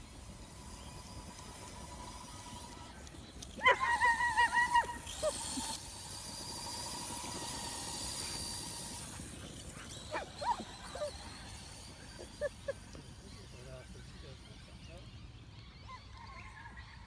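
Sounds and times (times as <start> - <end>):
faint steady whine: 0.0 - 17.0
dog yelping: 3.6 - 5.8, 10.0 - 12.8.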